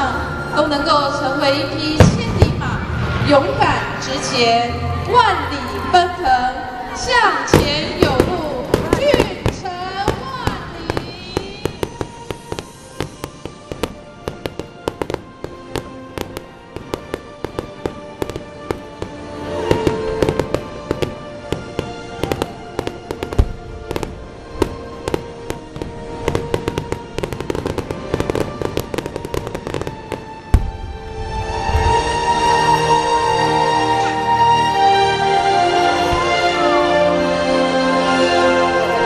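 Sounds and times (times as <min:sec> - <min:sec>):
music playing: 0:00.0 - 0:39.0
fireworks bursting and crackling: 0:07.5 - 0:31.0.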